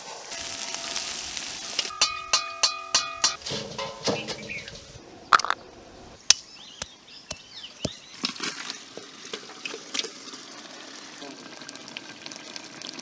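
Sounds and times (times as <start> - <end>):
metal spoon clinking on bowl: 1.9 - 4.1.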